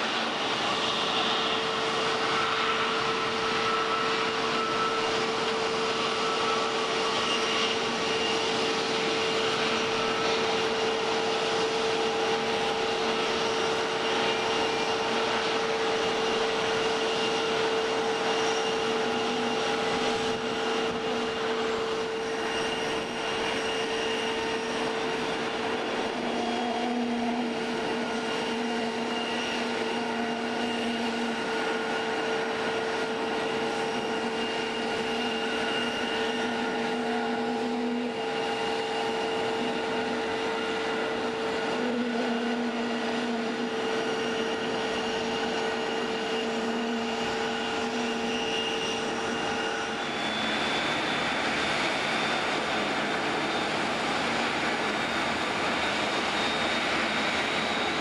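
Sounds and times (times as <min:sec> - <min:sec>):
constant rushing noise: 0:00.0 - 0:58.0
jet engines whining: 0:00.0 - 0:58.0.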